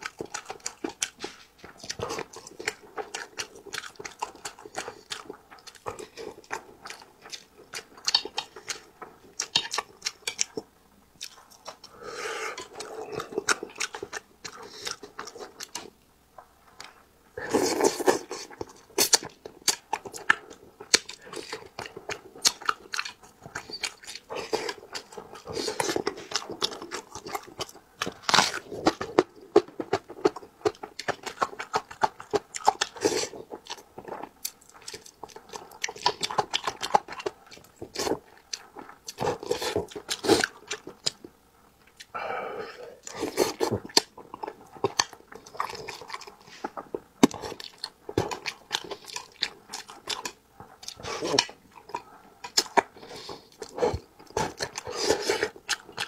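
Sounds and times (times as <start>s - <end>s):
wet chewing and lip smacking: 0.0s - 56.0s.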